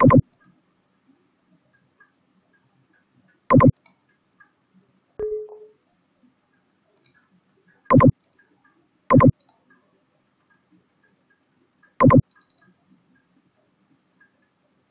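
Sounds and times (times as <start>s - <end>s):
mouse button clicks: 0.0s - 0.2s, 3.5s - 3.7s, 7.9s - 8.1s, 9.1s - 9.3s, 12.0s - 12.2s.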